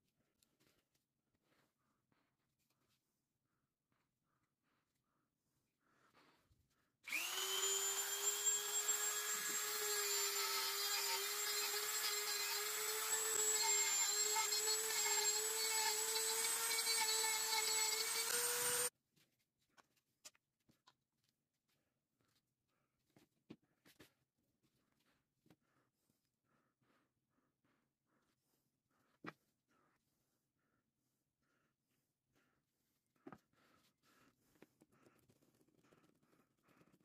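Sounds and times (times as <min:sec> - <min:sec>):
power sander whining on wood: 0:07.1 - 0:18.9.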